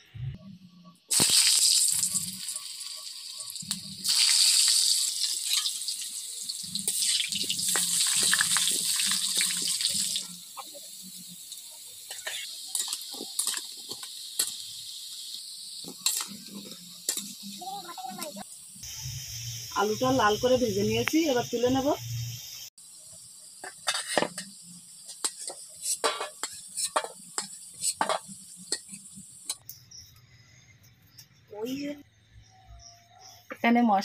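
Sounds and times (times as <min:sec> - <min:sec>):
potatoes sizzling in hot oil: 0:01.1 - 0:29.7
metal spatula scraping pan: 0:23.6 - 0:24.5, 0:25.2 - 0:29.0.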